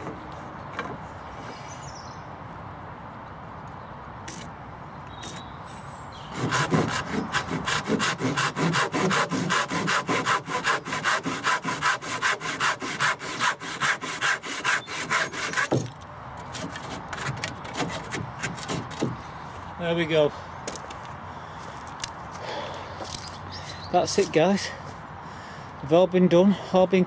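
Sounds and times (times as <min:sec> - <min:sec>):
hand saw cutting wood: 0:06.3 - 0:19.1.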